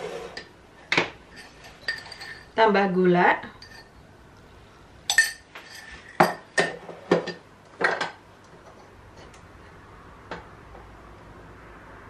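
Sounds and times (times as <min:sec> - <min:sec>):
metal spoon clinking on glass: 0:01.3 - 0:02.5, 0:03.6 - 0:04.0, 0:05.1 - 0:06.7.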